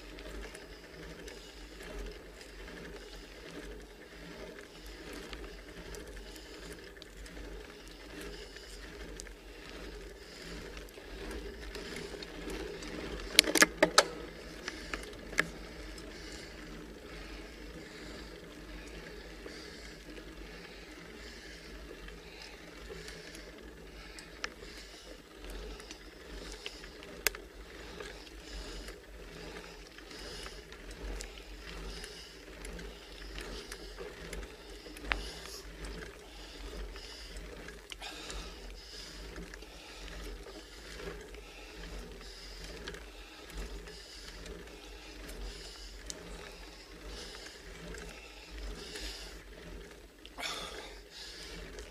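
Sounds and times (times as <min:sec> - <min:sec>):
bike and road rumble: 0:00.0 - 0:51.9
cyclist breathing hard: 0:00.0 - 0:51.9.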